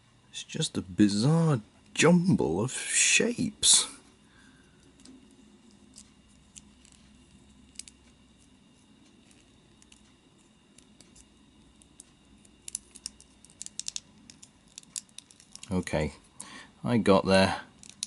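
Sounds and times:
plastic model parts clicking: 0:11.9 - 0:15.8, 0:17.8 - 0:18.0.

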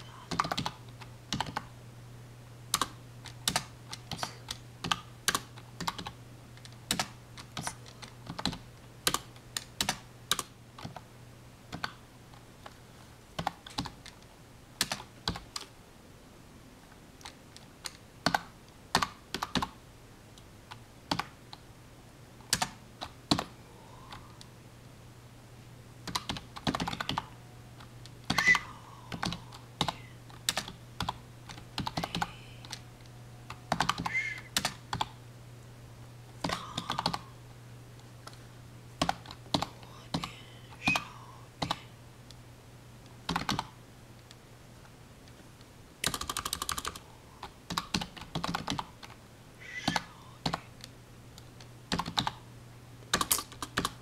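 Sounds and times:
typing on computer keyboard: 0:00.0 - 0:01.7, 0:02.7 - 0:11.0, 0:11.7 - 0:12.0, 0:13.4 - 0:14.2, 0:14.8 - 0:15.7, 0:17.2 - 0:19.8, 0:21.1 - 0:21.6, 0:22.5 - 0:23.5, 0:26.0 - 0:27.3, 0:28.3 - 0:32.8, 0:33.7 - 0:35.1, 0:36.4 - 0:37.3, 0:39.0 - 0:40.3, 0:43.3 - 0:43.7, 0:46.0 - 0:47.0, 0:47.7 - 0:49.1, 0:49.8 - 0:50.6, 0:51.9 - 0:52.4, 0:53.1 - 0:54.0
low steady hum: 0:00.0 - 0:54.0.

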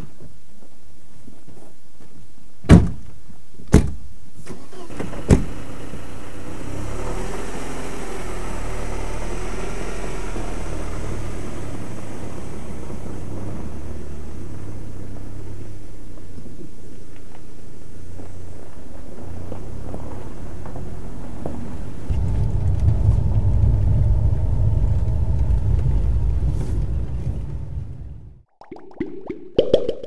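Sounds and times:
car engine starting and running: 0:04.4 - 0:28.5
car door slamming: 0:04.9 - 0:05.6.

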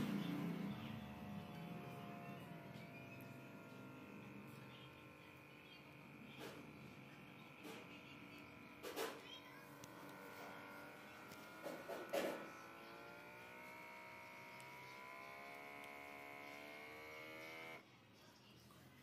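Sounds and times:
small air pump buzzing: 0:00.0 - 0:17.8.

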